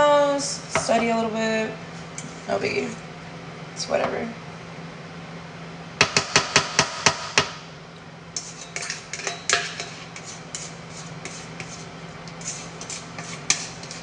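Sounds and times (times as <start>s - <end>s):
spatula scraping metal bowl: 8.4s - 14.0s.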